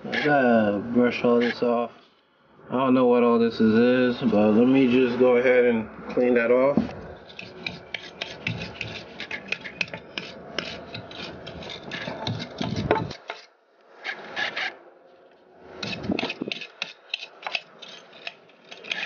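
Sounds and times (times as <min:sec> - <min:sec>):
brush scrubbing metal: 0:07.2 - 0:13.5, 0:15.8 - 0:19.0.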